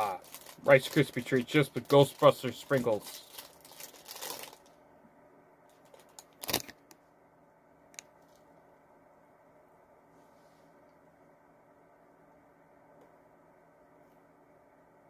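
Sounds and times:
plastic wrapper crinkling: 0.0 - 4.8, 5.8 - 6.8.

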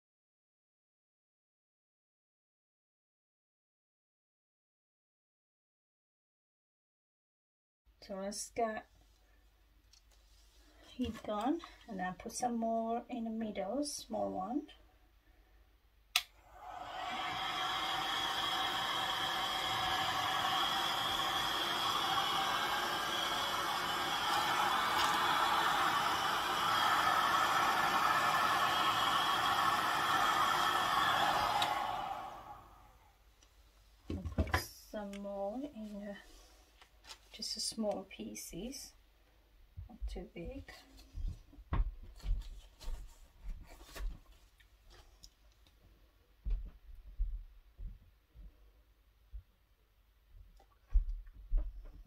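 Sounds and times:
heat gun fan whirring: 16.5 - 32.8.

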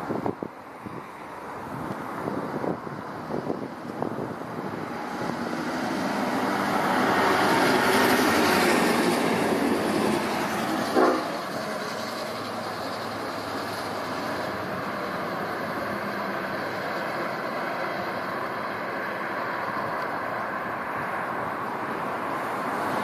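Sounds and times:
locomotive rumble: 1.6 - 23.0
higher-pitched locomotive noise: 5.0 - 18.4.

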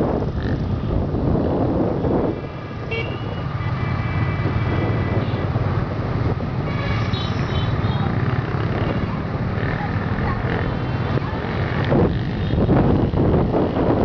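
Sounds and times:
scooter engine and road rumble: 0.0 - 14.0
wind rushing on microphone: 0.0 - 14.0
motorbike horns honking: 2.9 - 3.5, 6.6 - 9.2.

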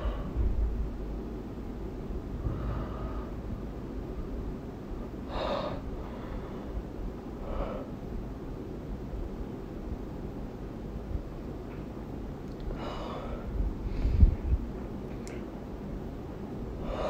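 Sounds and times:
low background rumble: 0.0 - 17.0
woman breathing sharply: 5.3 - 6.8, 12.8 - 14.5, 16.8 - 17.0.

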